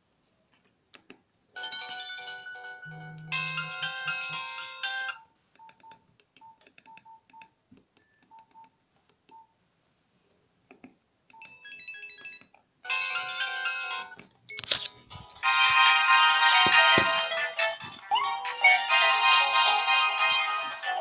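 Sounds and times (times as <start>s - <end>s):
phone ringtone melody: 1.6s - 5.2s, 11.5s - 14.2s, 15.1s - 21.0s
phone key beeps: 11.3s - 12.5s.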